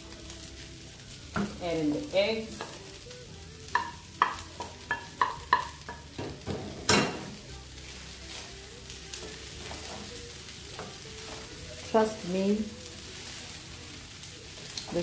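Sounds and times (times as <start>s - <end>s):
light sizzle: 0.0s - 15.0s
wooden spoon knocking on pan: 3.7s - 7.3s
pan clattering on stove: 3.8s - 7.4s.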